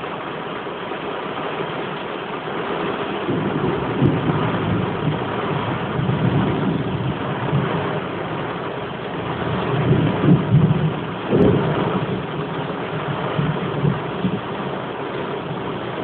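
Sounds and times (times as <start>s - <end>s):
heavy rain hissing: 0.0s - 16.0s
sharp thunder clap: 3.2s - 8.6s, 9.2s - 14.5s
rolling thunder: 3.2s - 16.0s.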